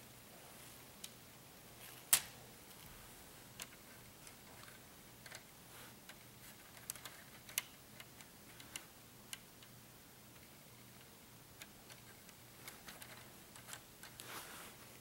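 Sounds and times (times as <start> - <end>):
plastic parts clicking: 6.1 - 9.7, 11.6 - 14.2.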